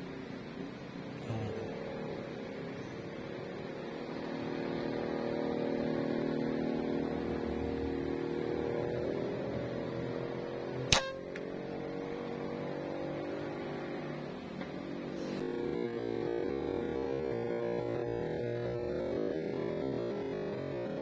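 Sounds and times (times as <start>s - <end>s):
steady low hum: 0.0s - 21.0s
air rifle firing crack: 10.9s - 11.2s.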